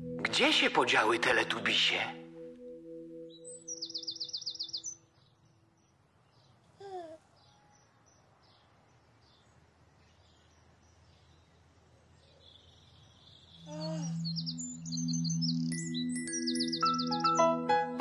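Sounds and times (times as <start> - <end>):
gentle music with low pulses: 0.0 - 6.0, 13.1 - 18.0
faint birdsong: 0.0 - 17.6
baby giggling: 6.8 - 7.2, 13.7 - 14.2.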